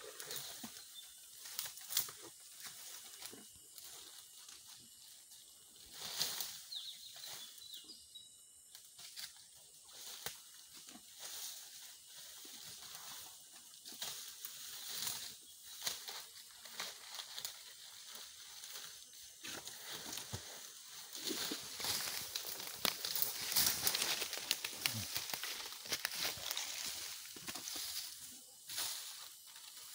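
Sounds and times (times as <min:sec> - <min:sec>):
elephant rustling and tearing grass: 0:13.9 - 0:29.9.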